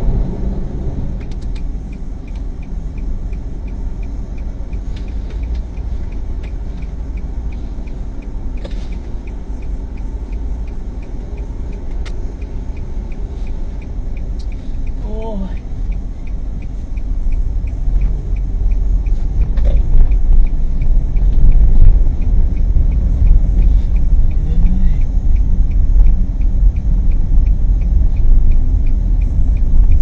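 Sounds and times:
car engine and tyres rumble: 0.0s - 30.0s
light regular ticking: 0.1s - 30.0s.

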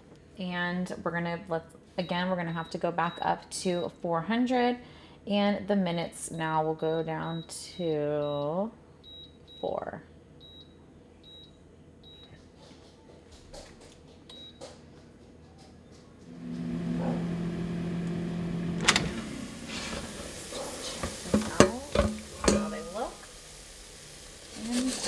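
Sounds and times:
short beeps: 6.8s - 9.7s, 10.4s - 12.3s
air fryer fan humming: 13.9s - 25.0s
metal basket clattering: 20.5s - 23.1s.

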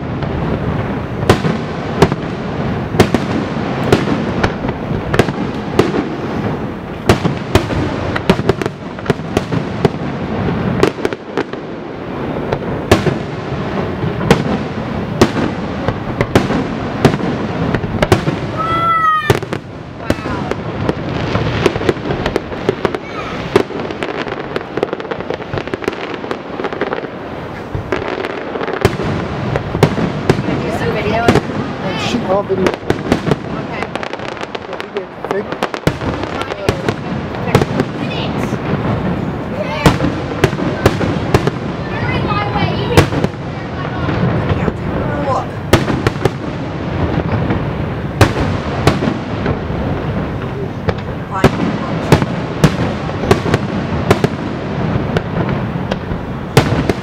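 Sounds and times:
fireworks bangs and booms: 0.0s - 57.0s.

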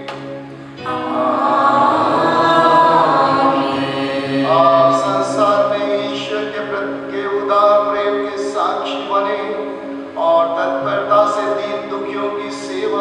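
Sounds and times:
choir singing held chords: 0.0s - 13.0s.

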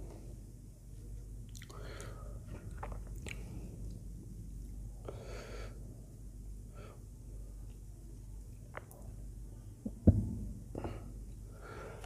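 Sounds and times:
low steady hum: 0.0s - 12.0s
person breathing: 1.7s - 2.7s, 5.0s - 6.1s, 6.7s - 7.6s, 10.7s - 12.0s.

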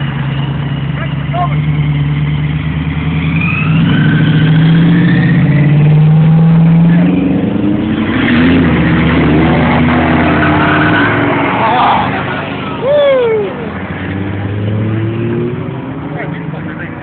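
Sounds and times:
hot rod engines passing: 0.0s - 17.0s.

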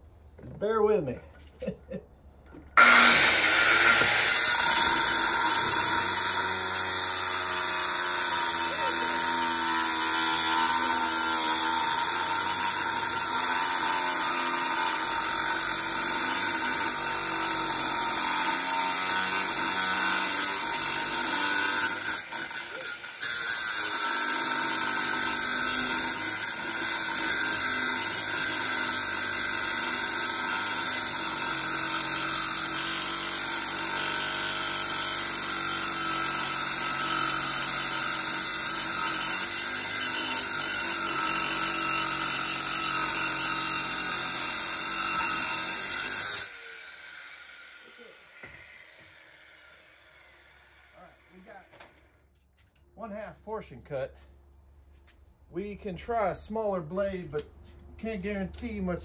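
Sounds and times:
angle grinder cutting metal: 2.8s - 52.0s.

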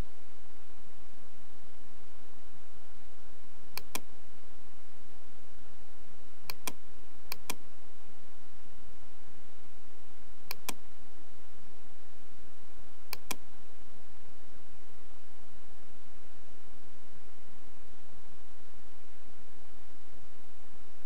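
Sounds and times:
steady low hum: 0.0s - 21.0s
computer mouse clicking: 3.8s - 4.1s, 6.5s - 7.6s, 10.5s - 10.8s, 13.1s - 13.4s.

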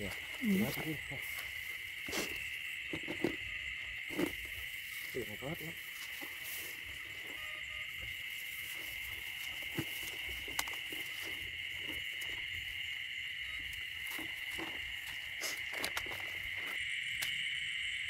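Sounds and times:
night insects chorus: 0.0s - 18.0s.

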